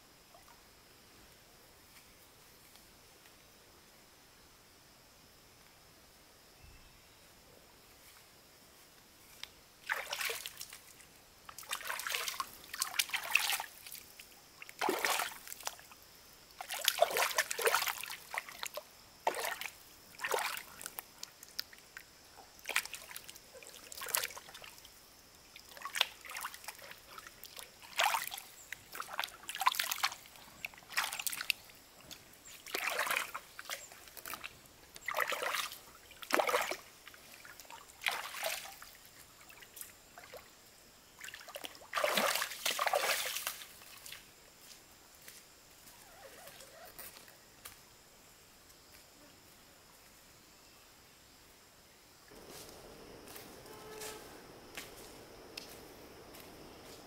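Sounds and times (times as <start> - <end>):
water splashing and sloshing: 9.8 - 44.3.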